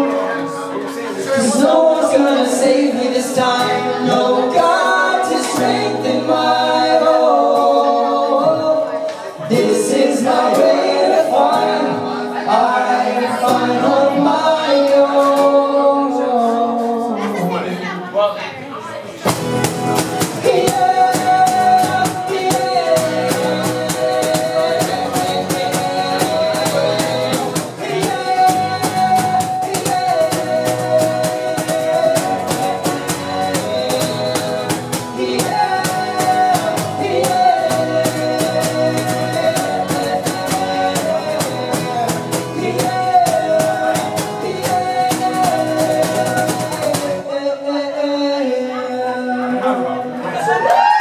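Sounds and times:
strummed acoustic guitars: 0.0 - 17.8, 19.1 - 50.3
person singing: 0.0 - 18.0, 20.0 - 50.9
steady drum beat: 19.3 - 47.2.

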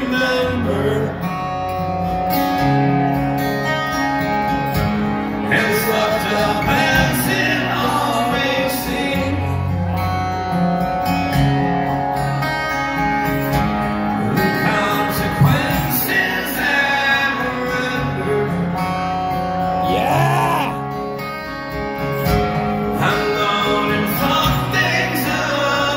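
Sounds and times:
man singing: 0.0 - 1.4, 5.5 - 9.6, 14.3 - 18.5, 19.8 - 21.0, 23.0 - 25.9
acoustic guitars strumming: 0.0 - 25.9.

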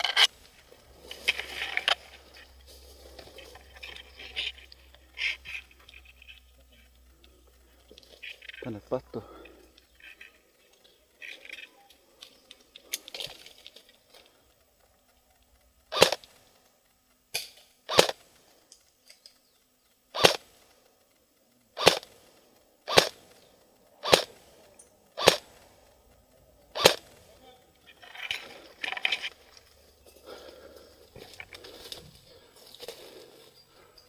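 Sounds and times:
faint rustles: 0.0 - 34.0
airsoft gun shots: 15.9 - 16.2, 17.9 - 18.2, 20.2 - 20.5, 21.8 - 22.1, 22.9 - 23.2, 24.0 - 24.4, 25.2 - 25.5, 26.7 - 27.1.

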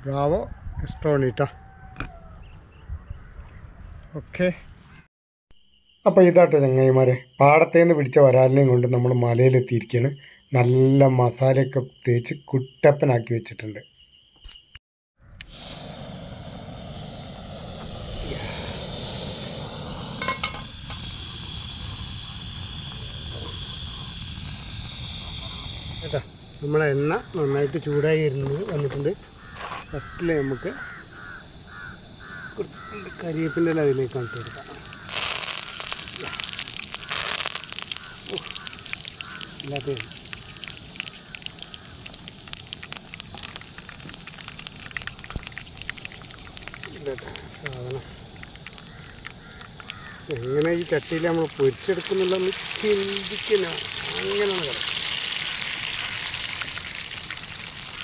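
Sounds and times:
leaves sizzling in hot oil: 15.5 - 26.2, 32.8 - 58.0.

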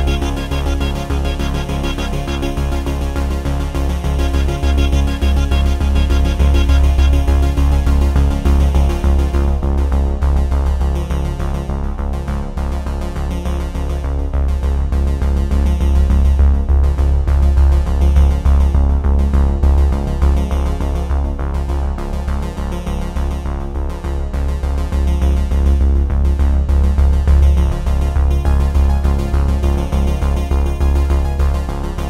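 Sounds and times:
electronic synthesizer music: 0.0 - 9.3.

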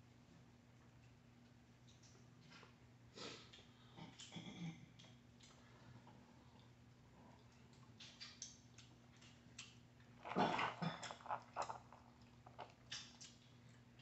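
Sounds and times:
faint low hum: 0.0 - 14.0
crawfish shells cracking: 8.0 - 14.0.

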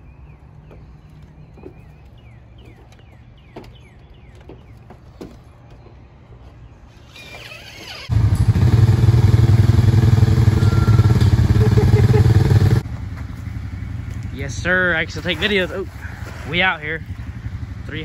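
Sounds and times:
atv engine running: 7.2 - 18.0.

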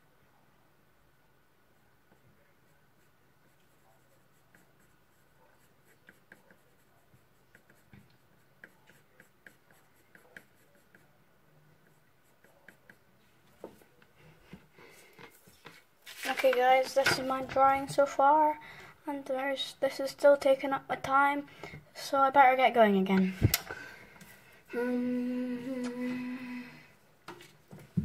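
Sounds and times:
pencil scratching on paper: 2.1 - 13.1.

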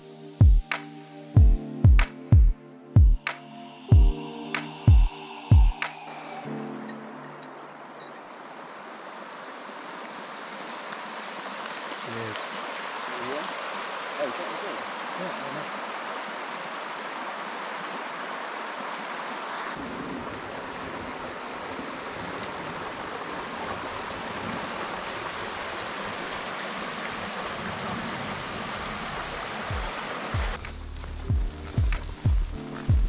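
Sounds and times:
music: 0.0 - 7.6, 29.7 - 33.0
river babbling over stones: 6.7 - 30.6.

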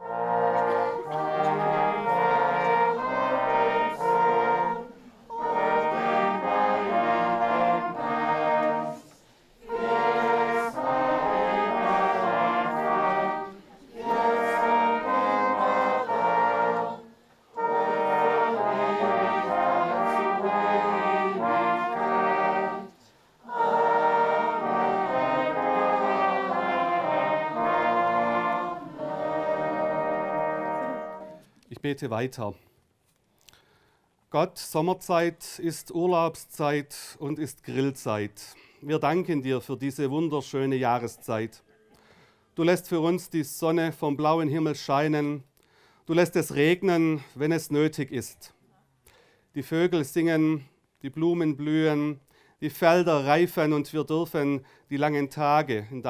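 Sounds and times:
brass ensemble playing: 0.0 - 31.5.

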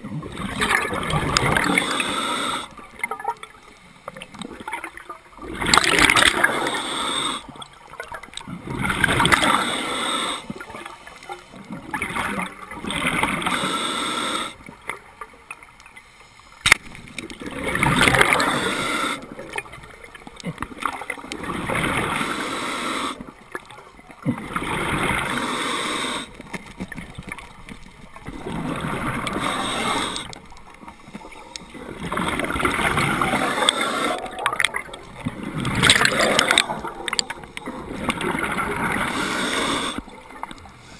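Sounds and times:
scuba regulator breath bubbling: 0.3 - 3.0, 5.4 - 14.8, 16.6 - 23.5, 24.3 - 40.9.

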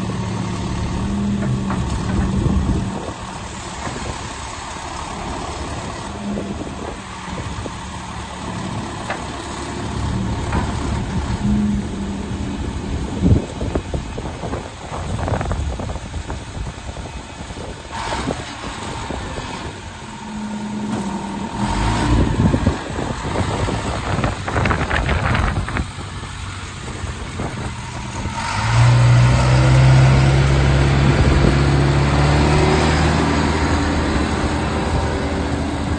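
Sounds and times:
diesel engine running: 0.0 - 35.9.

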